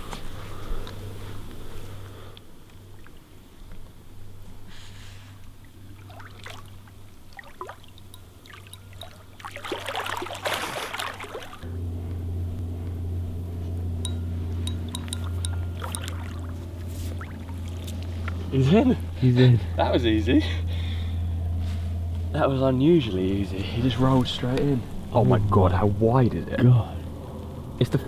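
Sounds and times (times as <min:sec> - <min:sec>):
steady low hum: 0:00.0 - 0:28.0
fish splashing in water: 0:05.6 - 0:11.7, 0:14.9 - 0:18.4.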